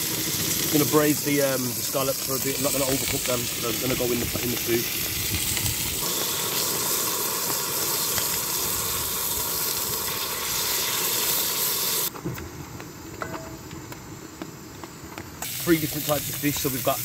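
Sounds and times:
scallops sizzling in pan: 0.0s - 12.1s, 15.4s - 17.0s.

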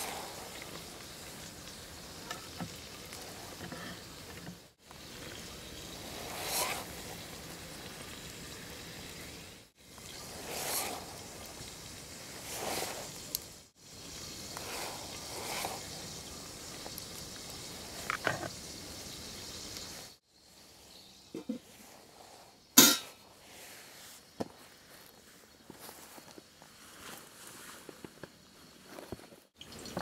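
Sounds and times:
food sizzling in a pot: 0.0s - 23.9s, 29.6s - 30.0s
utensils clattering: 22.8s - 23.2s.

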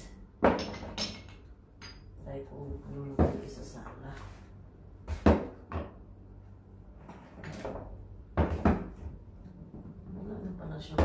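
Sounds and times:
bottles clunking on a dresser: 0.4s - 2.0s.

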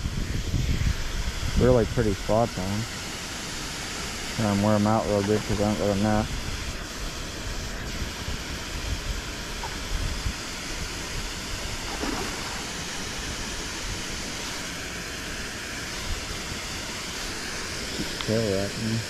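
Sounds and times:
river water rushing: 11.7s - 13.7s.

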